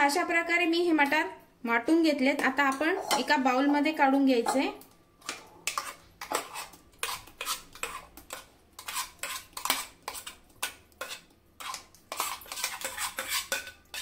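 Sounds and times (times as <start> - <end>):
steel spoon scraping metal jar: 8.8 - 10.4, 11.0 - 14.0.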